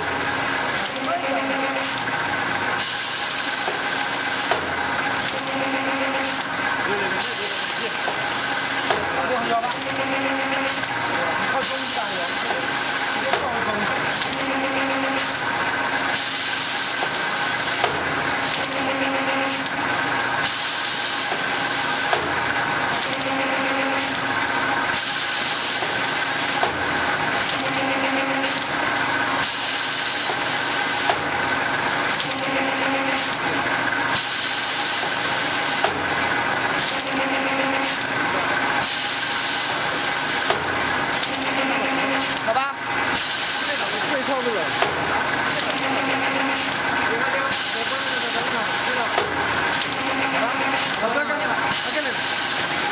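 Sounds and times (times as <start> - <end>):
sharp machine click: 1.8 - 2.1, 3.6 - 5.6, 6.2 - 6.6, 8.0 - 10.0, 10.6 - 11.0, 14.2 - 14.6, 15.2 - 15.5, 16.1 - 19.8, 20.4 - 24.3, 27.4 - 27.8, 28.4 - 28.8, 32.1 - 32.5, 33.1 - 33.5, 36.8 - 37.2, 38.9 - 41.6, 42.2 - 42.5, 43.4 - 46.9, 47.5 - 51.1
machine hiss: 2.8 - 6.5, 7.1 - 9.1, 11.6 - 13.5, 16.1 - 19.7, 20.4 - 22.3, 24.9 - 26.7, 29.4 - 31.3, 34.1 - 36.0, 38.8 - 42.4, 43.1 - 46.8, 47.5 - 51.0, 51.7 - 52.9.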